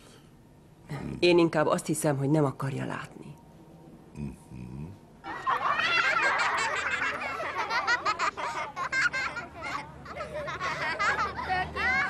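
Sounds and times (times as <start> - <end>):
children chattering and laughing: 5.2 - 12.0.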